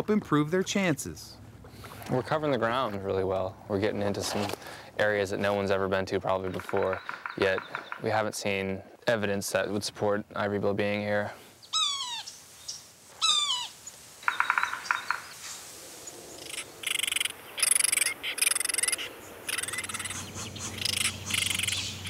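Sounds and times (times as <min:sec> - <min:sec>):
rapid bird trill: 0:06.4 - 0:08.1, 0:11.7 - 0:15.4, 0:16.4 - 0:22.0
woodpecker falling calls: 0:06.4 - 0:08.2, 0:13.2 - 0:15.4, 0:16.4 - 0:21.9
chorus of calling frogs: 0:13.4 - 0:15.3, 0:16.3 - 0:22.0.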